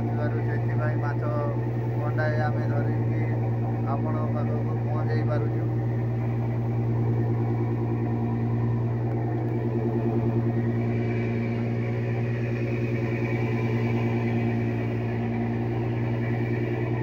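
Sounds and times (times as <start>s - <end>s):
diesel boat engine humming: 0.0s - 17.0s.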